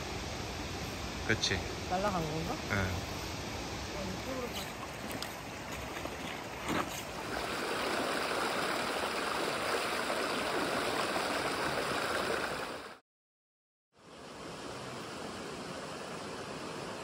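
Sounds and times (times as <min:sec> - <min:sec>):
stream rushing over rocks: 0:03.9 - 0:13.0.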